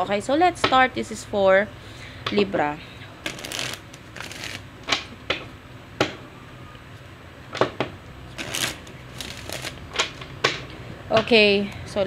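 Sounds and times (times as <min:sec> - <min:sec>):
cards riffle shuffling: 0:03.2 - 0:05.0, 0:08.3 - 0:10.2.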